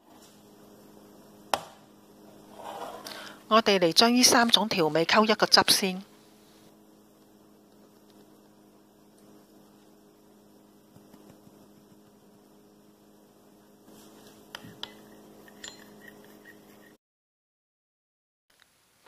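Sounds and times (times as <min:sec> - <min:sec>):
low electrical hum: 0:00.0 - 0:17.0
metal spoon clinking glass bowl: 0:15.4 - 0:16.6.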